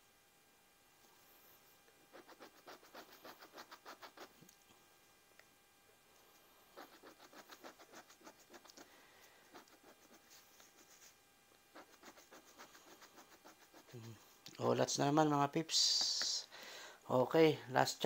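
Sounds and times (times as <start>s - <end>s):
scratch-off ticket being scratched: 2.1s - 4.4s, 6.8s - 14.2s.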